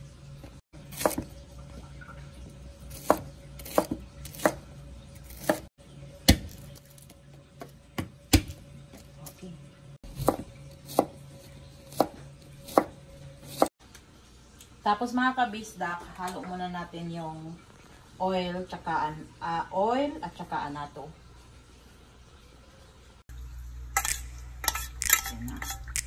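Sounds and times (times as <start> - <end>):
knife chopping on cutting board: 0.9 - 1.3, 2.9 - 4.6, 5.3 - 5.7, 10.1 - 11.2, 11.8 - 13.7.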